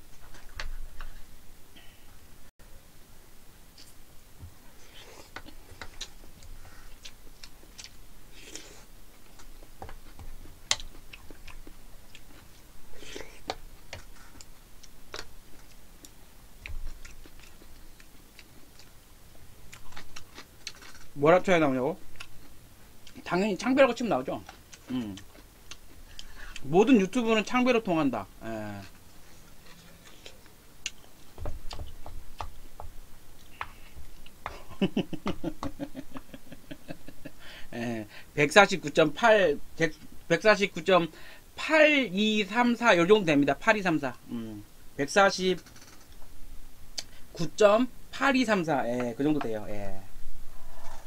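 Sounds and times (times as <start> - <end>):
person chewing: 4.8 - 21.2, 22.0 - 23.2, 24.4 - 26.7, 28.7 - 36.3
man chuckling: 34.5 - 38.0.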